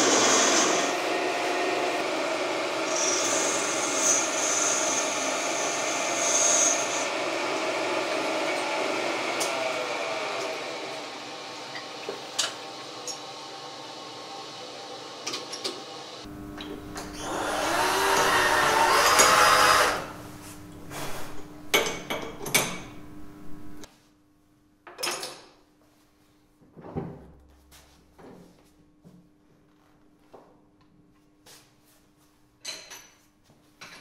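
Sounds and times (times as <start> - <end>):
metal lathe running: 0.0 - 15.2, 16.9 - 20.2
cordless drill boring into metal: 17.2 - 20.1.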